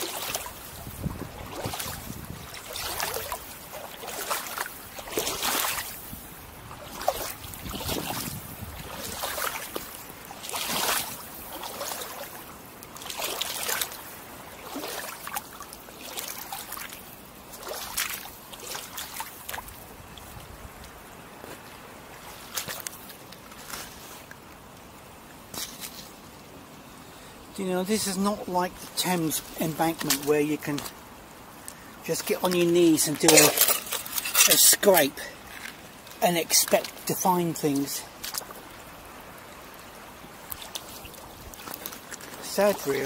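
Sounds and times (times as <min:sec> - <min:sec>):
boots wading through shallow water: 0:00.0 - 0:43.0.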